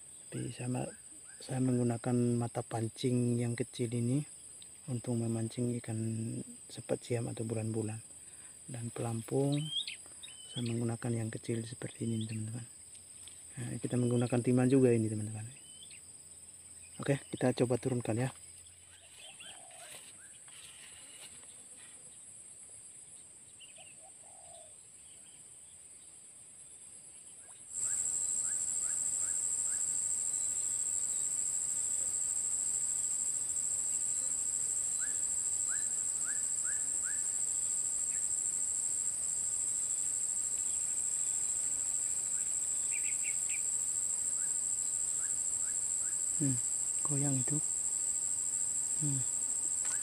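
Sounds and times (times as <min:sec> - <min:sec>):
high-pitched insect drone: 0:00.0 - 0:22.0, 0:27.7 - 0:50.0
bird chirping: 0:09.4 - 0:10.9, 0:42.4 - 0:43.7.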